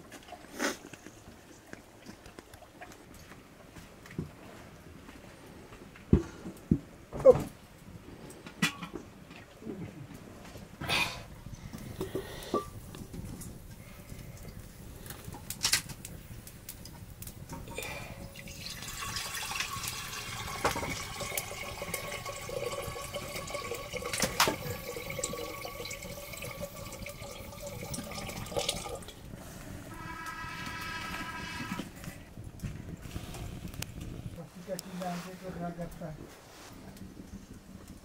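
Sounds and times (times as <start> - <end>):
water pouring into metal pot: 16.7 - 32.0.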